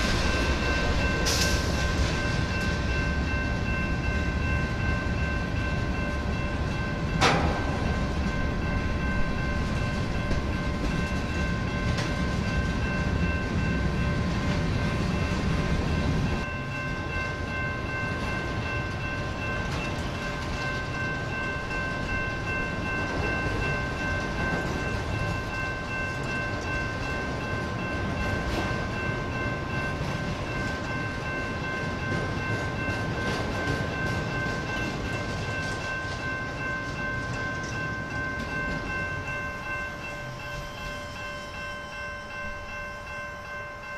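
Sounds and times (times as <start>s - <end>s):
train wheels rumbling on rail: 0.0s - 43.9s
high ringing tone: 33.6s - 43.9s.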